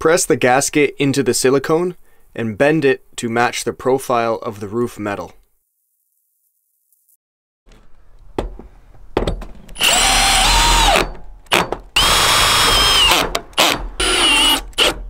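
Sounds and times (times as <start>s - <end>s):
drill knocking into place: 8.4s - 15.0s
cordless drill motor whine: 9.8s - 11.0s, 12.0s - 15.0s.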